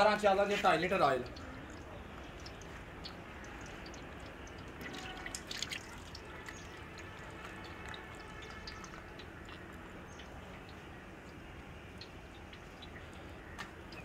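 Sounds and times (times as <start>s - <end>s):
oil pouring into metal pot: 1.3s - 10.4s.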